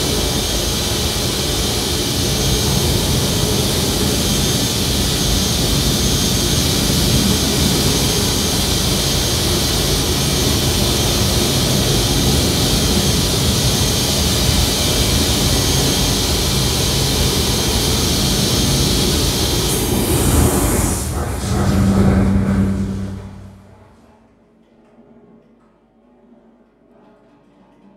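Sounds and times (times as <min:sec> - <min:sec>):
loud white-noise hiss: 0:00.0 - 0:23.8
low rumble: 0:18.8 - 0:24.1.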